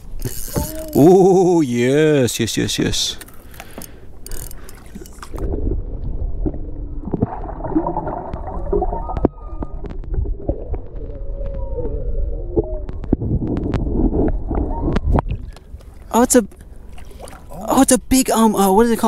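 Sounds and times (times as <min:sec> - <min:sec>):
sharp underwater clicks: 0:03.1 - 0:05.5
muffled underwater rumble: 0:05.2 - 0:15.8.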